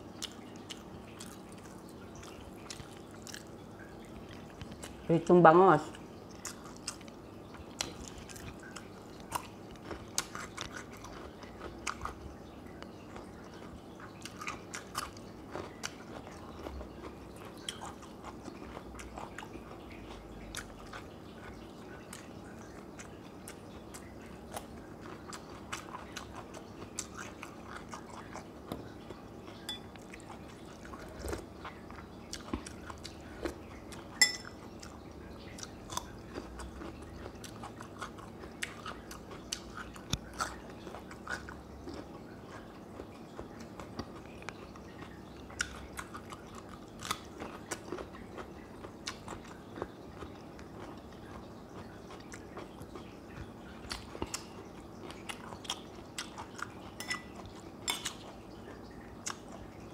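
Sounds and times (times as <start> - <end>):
chewing and biting fish: 7.8 - 59.8
spoon clinking ceramic bowl: 29.7 - 30.0, 34.2 - 34.6, 57.0 - 58.1.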